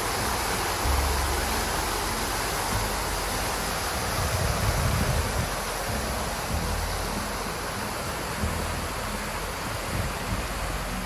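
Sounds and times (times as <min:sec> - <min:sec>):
fountain water splashing: 0:00.0 - 0:11.0
low rumble on microphone: 0:00.1 - 0:11.0.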